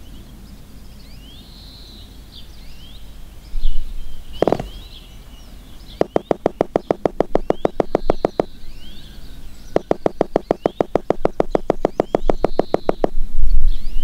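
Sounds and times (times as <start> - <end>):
birds chirping faintly: 0.0 - 14.0
hammer tapping wooden post: 4.4 - 4.8, 6.0 - 8.5, 9.8 - 13.2
wooden sticks knocking: 4.4 - 4.8, 6.0 - 8.5, 9.8 - 13.1.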